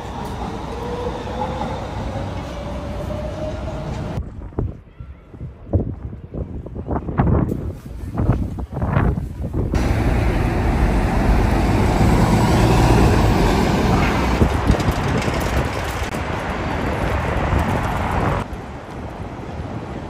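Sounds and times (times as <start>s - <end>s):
bus engine and tyre noise: 0.0s - 4.2s, 7.5s - 20.0s
street traffic: 0.0s - 4.5s, 9.3s - 20.0s.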